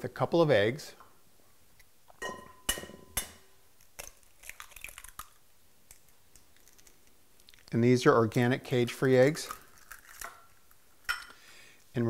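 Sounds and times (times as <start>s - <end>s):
eggshell crackling: 3.6s - 11.4s.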